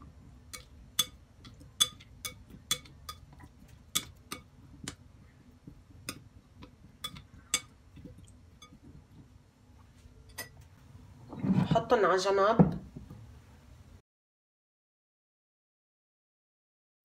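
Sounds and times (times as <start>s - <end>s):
stirring in batter: 0.0s - 10.7s.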